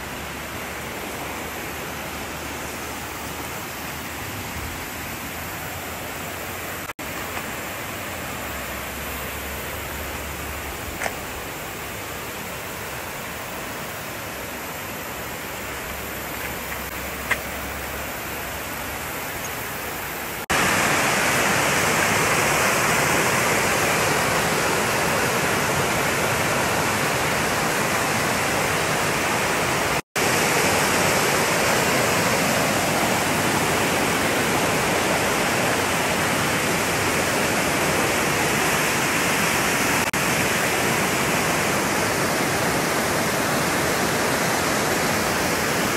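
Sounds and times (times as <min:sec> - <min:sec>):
waterfall over rocks: 0:00.0 - 0:45.9.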